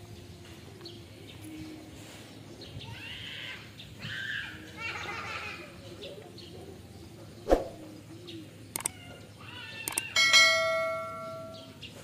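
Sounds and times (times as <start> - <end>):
mouse clicks: 8.7 - 9.0, 9.8 - 10.0.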